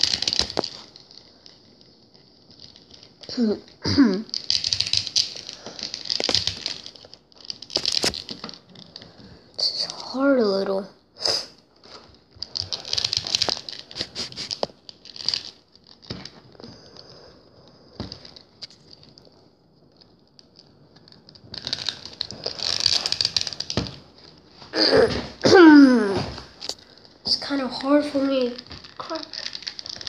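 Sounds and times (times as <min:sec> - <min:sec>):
plastic action figure clicks and scrapes: 0:00.0 - 0:01.7, 0:04.3 - 0:09.1, 0:12.4 - 0:16.4, 0:27.5 - 0:30.0.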